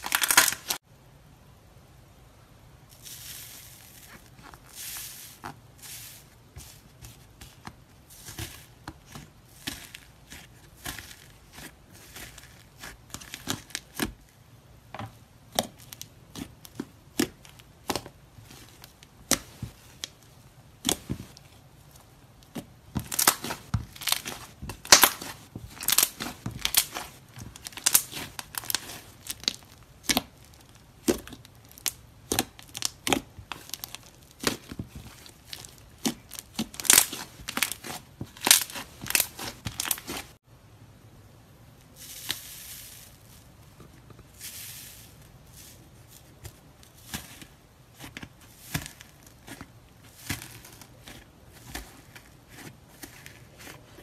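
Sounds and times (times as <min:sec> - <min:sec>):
slime crackling and popping: 0:00.0 - 0:00.8, 0:15.5 - 0:20.2, 0:22.4 - 0:40.4.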